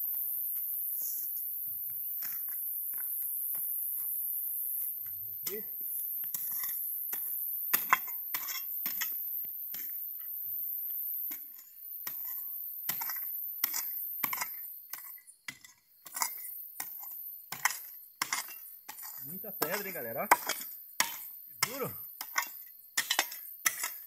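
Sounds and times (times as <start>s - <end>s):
shovel blade clinking on stones: 11.6s - 24.0s
shovel stabbing into stony soil: 12.9s - 24.0s.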